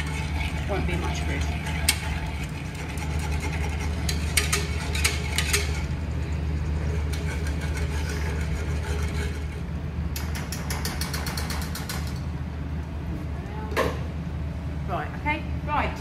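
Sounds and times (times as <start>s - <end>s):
steady low hum: 0.0s - 16.0s
whisk clicking against metal pot: 2.9s - 5.9s.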